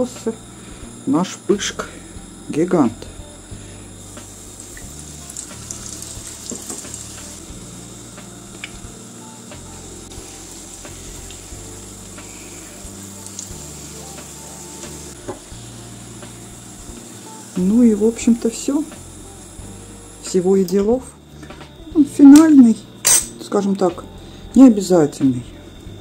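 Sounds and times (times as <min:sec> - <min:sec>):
dough sizzling in hot oil: 0:00.0 - 0:20.8.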